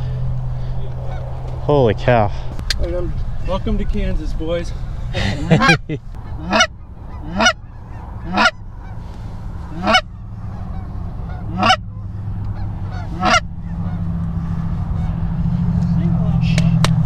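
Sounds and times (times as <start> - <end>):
goose honking: 5.5 - 15.3.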